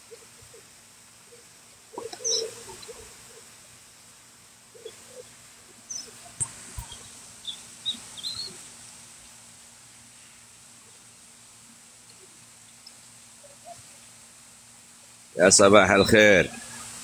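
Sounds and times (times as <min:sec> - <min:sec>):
faint hiss: 0:00.0 - 0:17.0
birds chirping: 0:01.3 - 0:03.6, 0:04.7 - 0:08.8.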